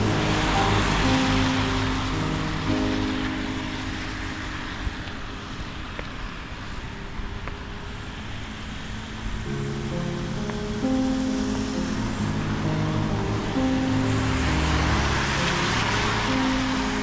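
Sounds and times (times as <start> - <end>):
background music: 0.0 - 5.6, 9.4 - 17.0
traffic rumble: 0.0 - 17.0.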